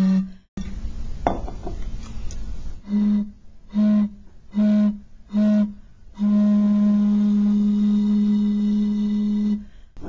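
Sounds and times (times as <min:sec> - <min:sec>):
bottle blown low hooting tone: 0:02.8 - 0:09.8.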